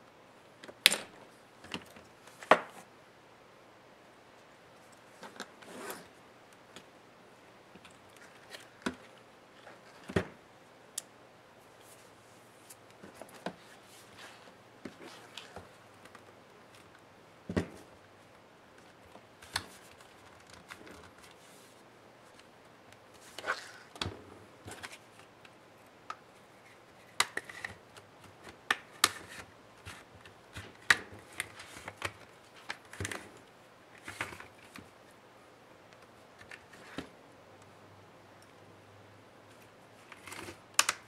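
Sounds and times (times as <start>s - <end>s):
plastic clips clicking and cracking: 40.1s - 41.0s.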